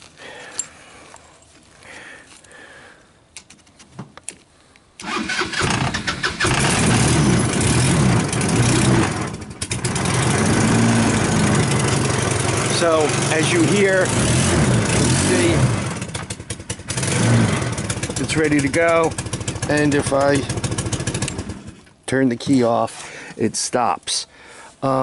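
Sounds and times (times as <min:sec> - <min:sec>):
go-kart engine running: 0:05.0 - 0:21.8
electric starter cranking: 0:05.0 - 0:21.9.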